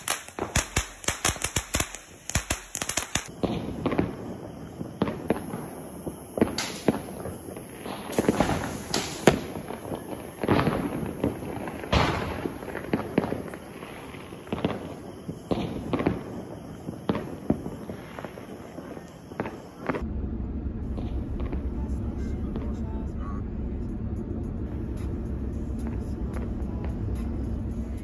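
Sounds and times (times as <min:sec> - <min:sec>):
firecrackers banging and crackling: 0:00.0 - 0:20.1
car driving rumble: 0:20.0 - 0:28.0.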